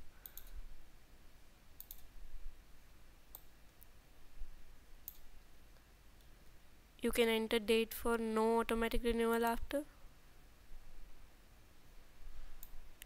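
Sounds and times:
low background hum: 0.0 - 13.0
computer mouse clicks: 0.2 - 0.6, 1.8 - 2.1, 3.3 - 3.5, 5.0 - 5.3.

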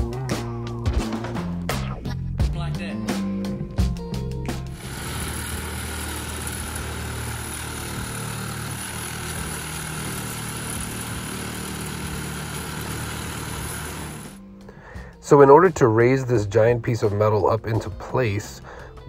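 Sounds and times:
engine running steadily: 4.5 - 15.2.

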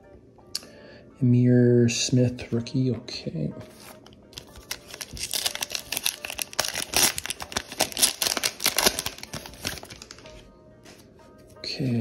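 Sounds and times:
foil wrapper crinkling: 4.4 - 10.3.

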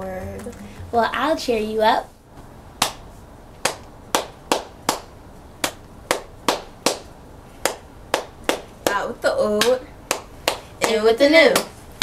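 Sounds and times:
person clapping hands: 2.8 - 3.0, 3.6 - 9.0, 9.6 - 11.0.

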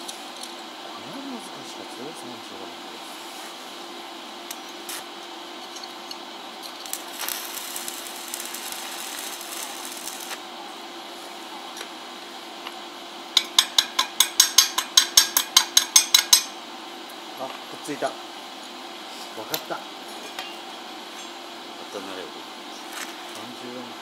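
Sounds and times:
steady hum: 0.0 - 24.0
welding arc crackling: 5.7 - 10.6.

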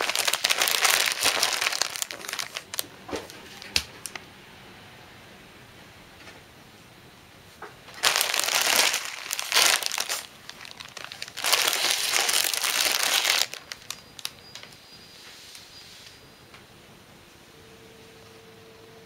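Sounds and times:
plastic wrapping crinkling: 0.0 - 4.2, 7.9 - 14.8.

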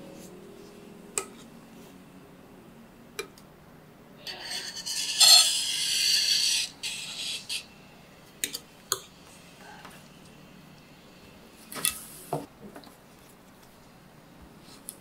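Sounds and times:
metal spatula scraping frosting: 4.3 - 7.7.

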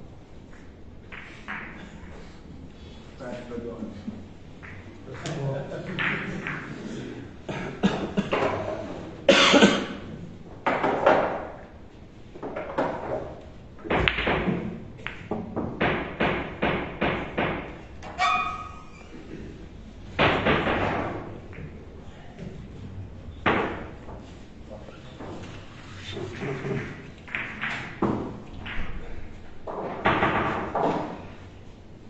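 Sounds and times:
billiard balls knocking: 0.5 - 2.3, 4.6 - 7.0, 7.9 - 9.0, 10.5 - 19.0, 20.1 - 22.6, 23.4 - 24.4, 26.3 - 31.3.

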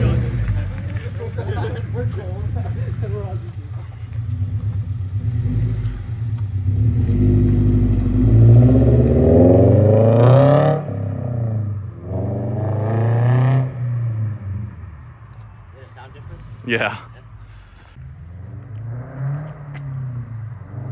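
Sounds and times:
car engine accelerating hard: 0.0 - 14.8.

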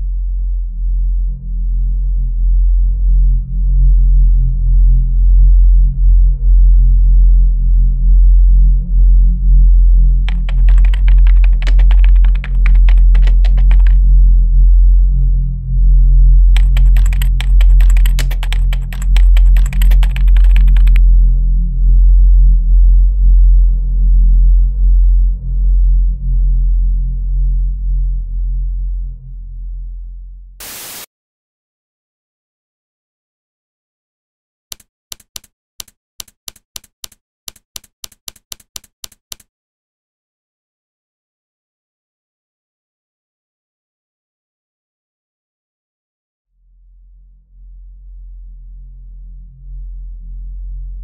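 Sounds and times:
loud low drone: 0.0 - 10.3, 13.7 - 16.6, 21.0 - 30.5
computer keyboard typing: 10.3 - 14.0, 16.6 - 21.0, 34.7 - 39.5
typewriter keystrokes: 10.3 - 14.0, 16.6 - 21.0, 34.7 - 39.5.

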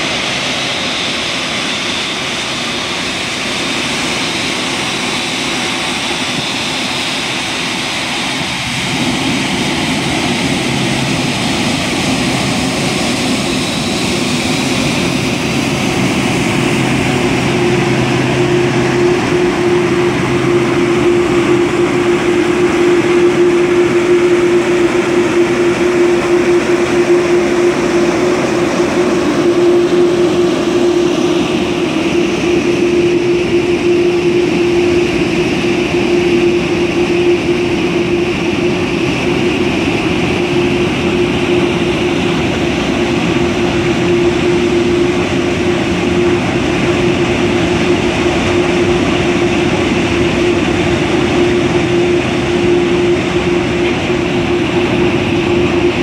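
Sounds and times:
jet engines taxiing: 0.0 - 56.0
steady humming tone: 0.0 - 56.0.

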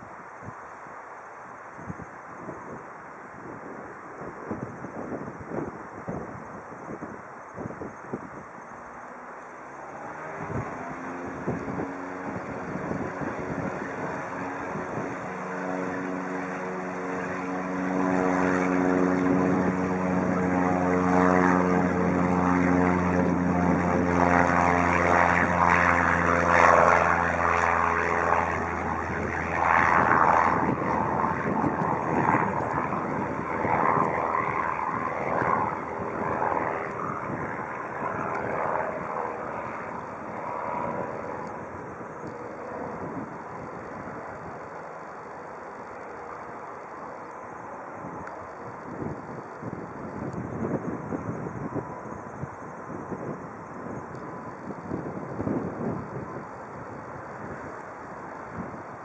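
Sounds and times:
plane engine and propeller droning: 0.0 - 59.0
uneven rushing noise: 7.5 - 20.9.

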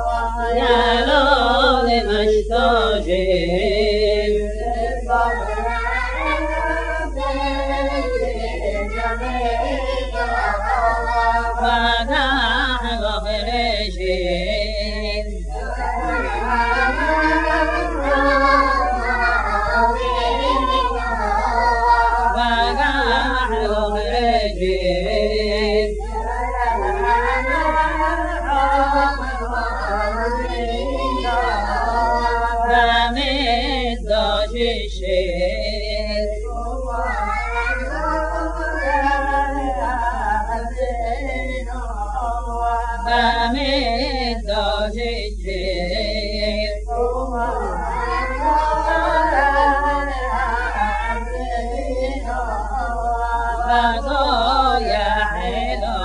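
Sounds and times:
man singing unaccompanied: 0.0 - 56.0.

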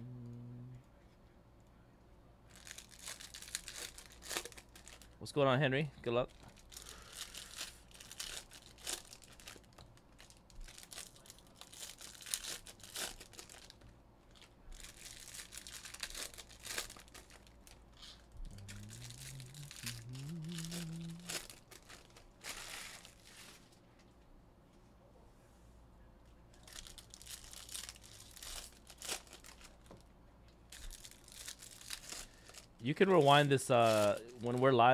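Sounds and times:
low hum rising in pitch: 0.0 - 0.8, 18.3 - 21.6
foil wrappers crinkling and tearing: 2.5 - 5.2, 6.3 - 23.8, 26.5 - 30.0, 30.7 - 34.9.

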